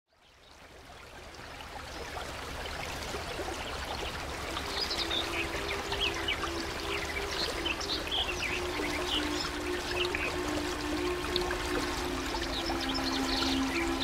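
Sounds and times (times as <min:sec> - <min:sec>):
running water: 0:00.1 - 0:14.0
background music: 0:04.6 - 0:14.0.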